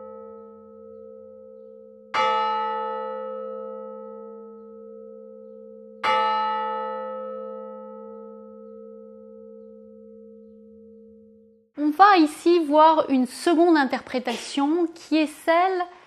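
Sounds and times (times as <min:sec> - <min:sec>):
large bell ringing: 0:00.0 - 0:11.7.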